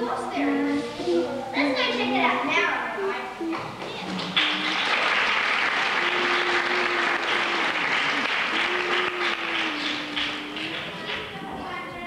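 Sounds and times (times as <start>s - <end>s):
children clapping: 3.5s - 11.6s.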